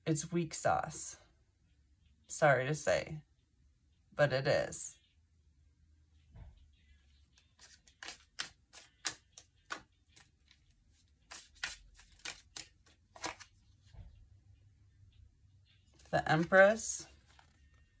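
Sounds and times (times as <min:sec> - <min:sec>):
cards shuffling: 0:07.3 - 0:13.8, 0:16.0 - 0:17.8.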